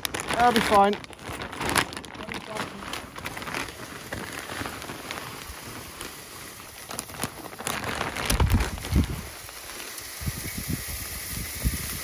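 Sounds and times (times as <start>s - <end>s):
granules pouring with hiss: 0.0s - 12.0s.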